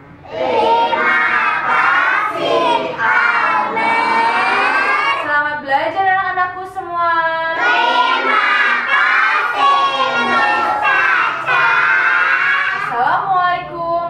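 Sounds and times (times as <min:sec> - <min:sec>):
children singing in chorus: 0:00.2 - 0:05.3, 0:07.6 - 0:13.0.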